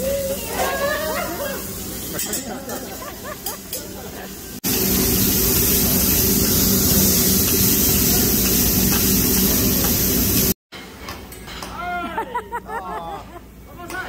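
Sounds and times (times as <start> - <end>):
food sizzling on griddle: 0.0 - 10.6.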